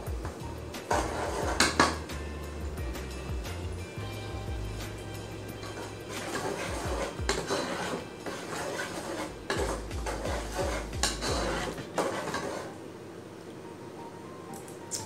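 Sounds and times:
ladle scraping a metal pot: 0.8s - 2.1s, 5.6s - 12.8s.

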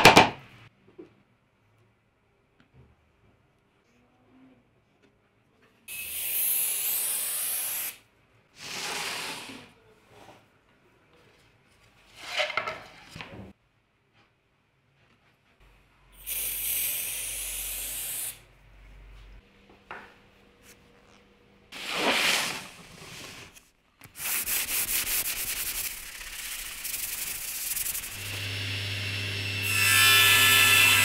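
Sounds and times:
loud hissing scrape: 8.6s - 9.7s
sanding pad rubbing strokes: 24.2s - 28.4s.

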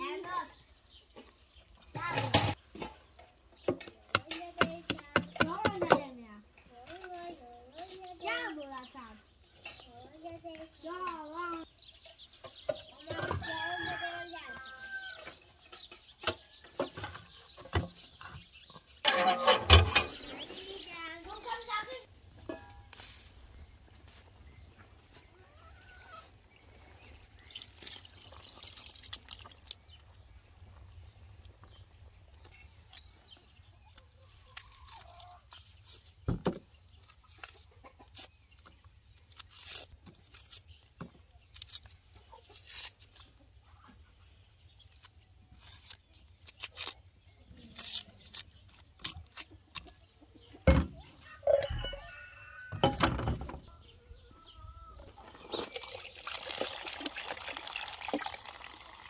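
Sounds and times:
chickens clucking: 18.7s - 27.4s, 37.6s - 38.4s, 49.9s - 55.7s
dishes clattering: 19.0s - 20.3s.

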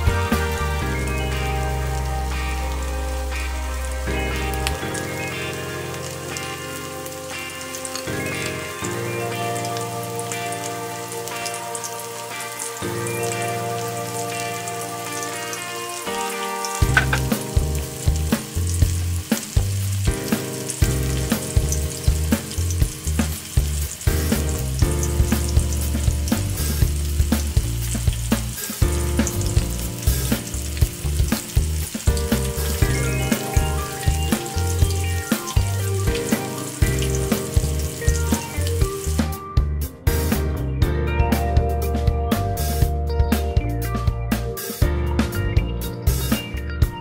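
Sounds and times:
background music with bass beat: 0.0s - 5.5s, 16.8s - 47.0s
oil sizzling and popping: 0.0s - 39.4s.

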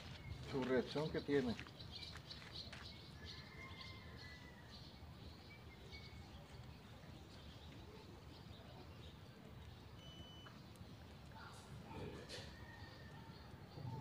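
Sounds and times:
faint high bird chirps: 2.0s - 10.8s.

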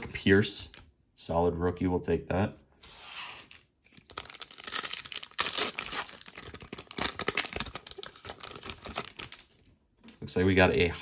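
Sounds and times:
card pack wrapper crinkling: 3.3s - 9.6s.

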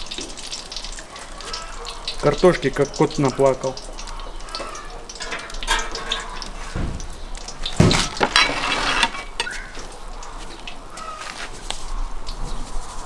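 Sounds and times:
hot oil crackling and sizzling: 0.0s - 13.0s
dull knocks: 6.6s - 8.4s.

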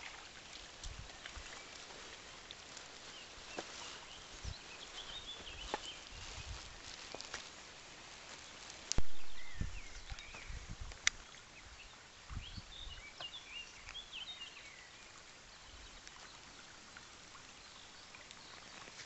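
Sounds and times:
stream rushing over stones: 0.0s - 19.0s
small birds chirping: 0.9s - 7.5s, 8.3s - 16.6s.

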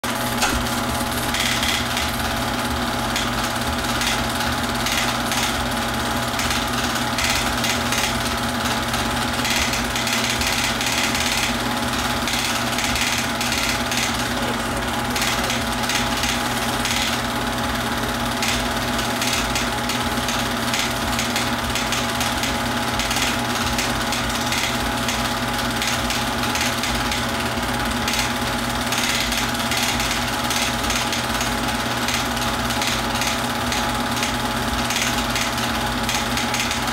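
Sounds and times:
film projector whirring: 0.0s - 36.9s.

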